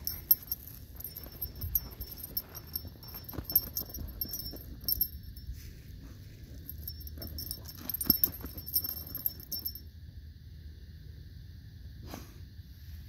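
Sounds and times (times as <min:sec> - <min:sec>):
harness metal jingling: 0:00.0 - 0:09.8.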